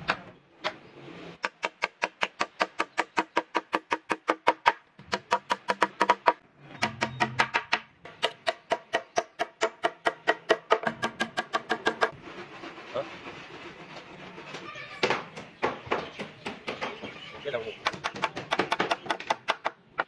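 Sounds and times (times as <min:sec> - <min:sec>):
hammer striking nails into wood: 0:01.4 - 0:12.1, 0:17.8 - 0:20.0.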